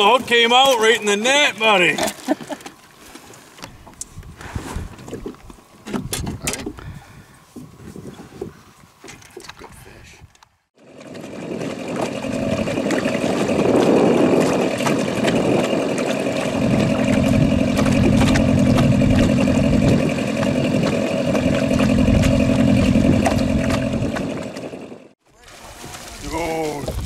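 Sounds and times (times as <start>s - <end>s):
outboard motor running: 10.8s - 25.2s.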